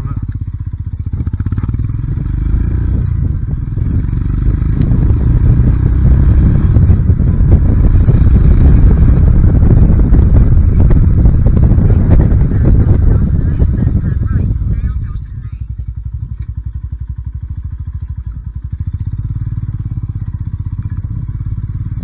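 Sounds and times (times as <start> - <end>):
motorcycle engine running: 0.0 - 22.0
wind rush on microphone: 1.8 - 16.3.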